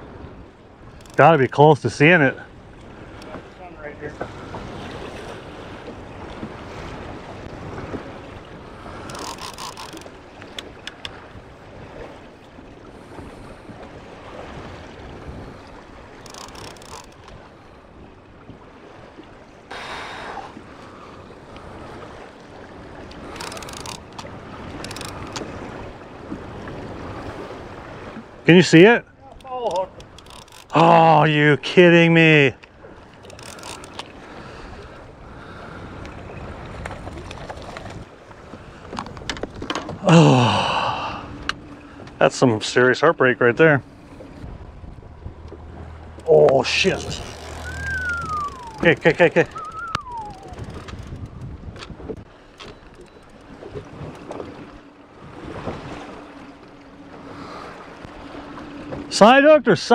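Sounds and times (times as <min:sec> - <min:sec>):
wind buffeting microphone: 0:00.0 - 0:19.4, 0:32.8 - 0:40.1, 0:43.5 - 0:59.2
waves slapping boat hull: 0:00.0 - 0:59.9
light clicks: 0:09.0 - 0:11.2, 0:23.3 - 0:25.5, 0:29.3 - 0:30.8
light clicks of gear: 0:09.0 - 0:11.2, 0:16.2 - 0:17.4, 0:23.1 - 0:25.5, 0:29.3 - 0:30.8, 0:32.6 - 0:34.2, 0:45.4 - 0:54.4.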